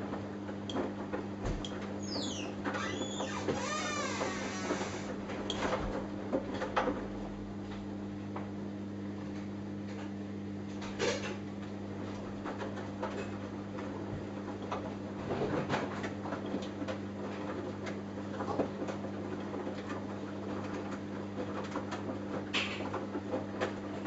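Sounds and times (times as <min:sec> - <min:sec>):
washing machine drum humming: 0:00.0 - 0:08.5, 0:10.7 - 0:24.0.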